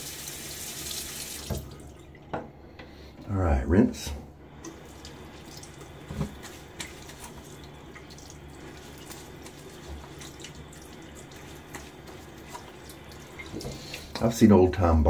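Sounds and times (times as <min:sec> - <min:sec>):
sink tap running: 0:00.0 - 0:01.9, 0:04.6 - 0:14.4
water splashes: 0:04.6 - 0:14.3.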